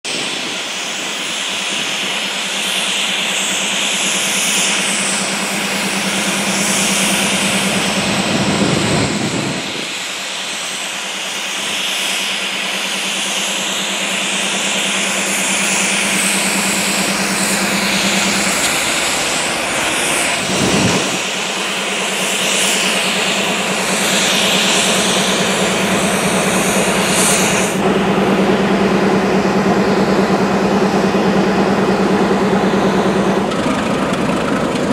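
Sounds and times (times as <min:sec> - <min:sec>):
diesel locomotive engine hum: 0:00.0 - 0:34.9
wheel and rail hiss: 0:00.1 - 0:34.9.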